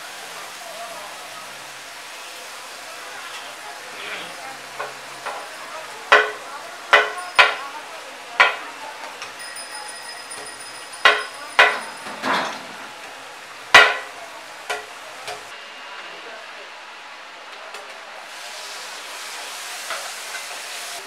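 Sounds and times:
food sizzling in oil: 0:00.0 - 0:15.6, 0:18.2 - 0:21.0
metal spatula clanging on wok: 0:06.1 - 0:07.7, 0:08.4 - 0:12.6, 0:13.8 - 0:15.4.

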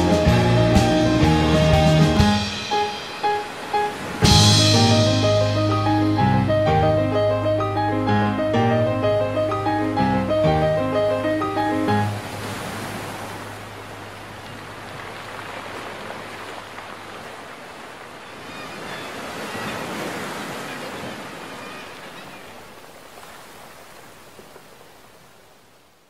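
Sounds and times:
ocean surf washing on beach: 0:00.0 - 0:26.0.

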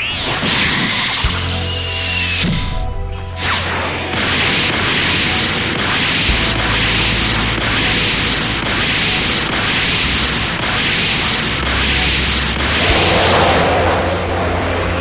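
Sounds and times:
rushing energy noise: 0:00.0 - 0:15.0
steady low drone: 0:01.2 - 0:15.0
booming impacts: 0:04.1 - 0:15.0.

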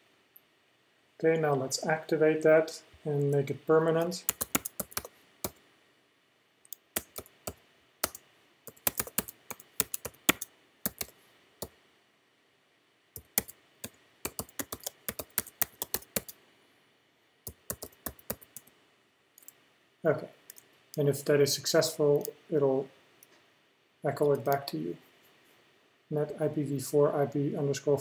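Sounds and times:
computer keyboard typing: 0:04.2 - 0:05.6, 0:06.7 - 0:11.2, 0:13.2 - 0:16.4, 0:17.5 - 0:18.7.

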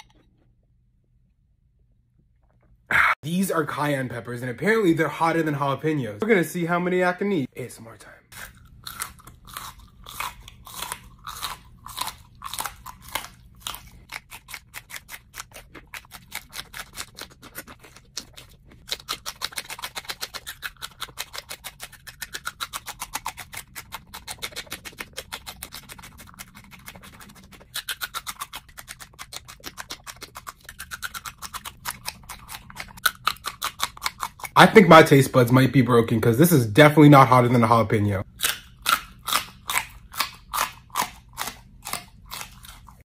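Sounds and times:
crunching and chewing peppers: 0:08.3 - 0:35.3, 0:37.3 - 0:43.0.

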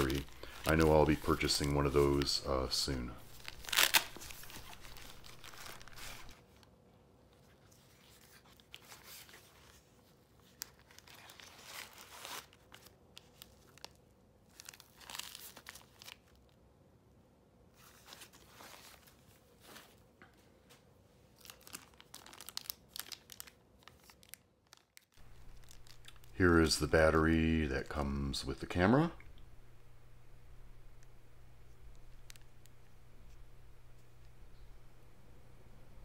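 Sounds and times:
plastic packaging crinkling: 0:00.0 - 0:06.4, 0:10.4 - 0:16.5, 0:21.3 - 0:34.6
nylon camera case rustling: 0:03.3 - 0:06.4.

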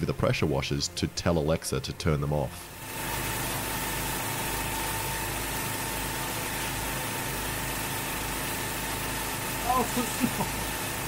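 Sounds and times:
pressure washer engines droning: 0:00.0 - 0:11.0
high-pressure water jets hissing: 0:02.6 - 0:11.0.

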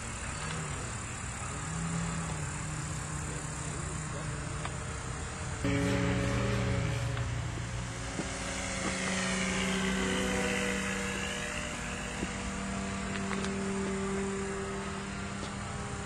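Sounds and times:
model plane motor drone: 0:00.0 - 0:16.0
high whine passing by: 0:05.6 - 0:16.0.

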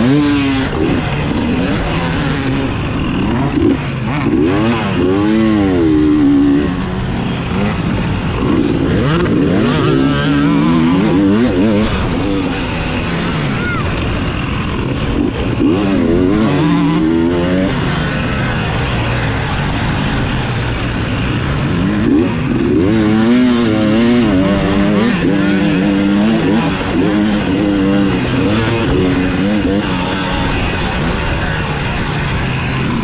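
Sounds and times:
dirt bike engine revving: 0:00.0 - 0:33.0
wind and track noise: 0:00.0 - 0:33.0.

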